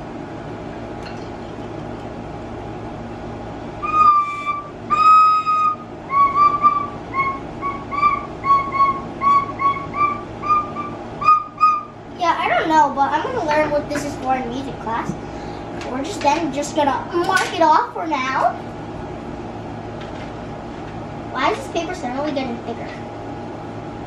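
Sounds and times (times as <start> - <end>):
child playing recorder: 3.8 - 12.0.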